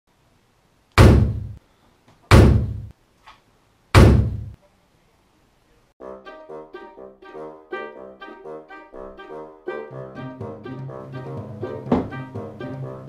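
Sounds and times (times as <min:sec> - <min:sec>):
heavy booming thuds: 0:01.0 - 0:01.6, 0:02.3 - 0:02.9, 0:04.0 - 0:04.6
brass music: 0:06.0 - 0:13.0.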